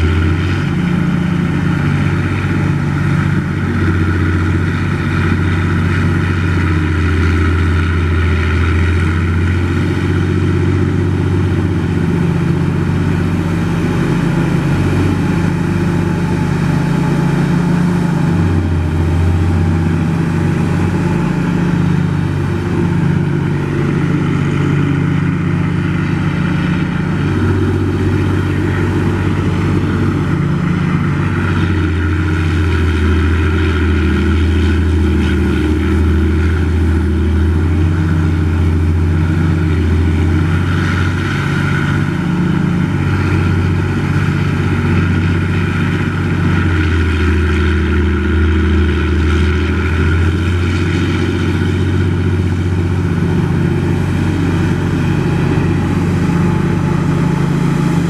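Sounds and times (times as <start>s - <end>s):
diesel engine running loud: 0.0s - 58.0s.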